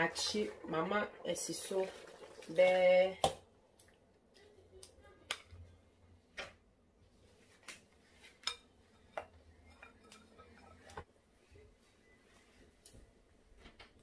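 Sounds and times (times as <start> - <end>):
spatula tapping and scraping bowl: 8.4 - 11.1.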